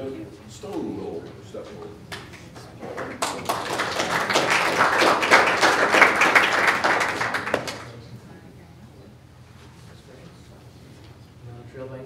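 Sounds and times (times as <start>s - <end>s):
audience applauding: 2.1s - 8.0s.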